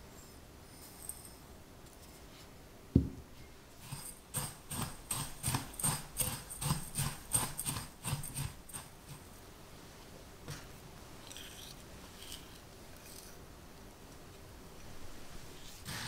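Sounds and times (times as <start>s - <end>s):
low thump: 3.0s - 3.2s
spatula stirring crumbs in glass bowl: 3.8s - 9.2s.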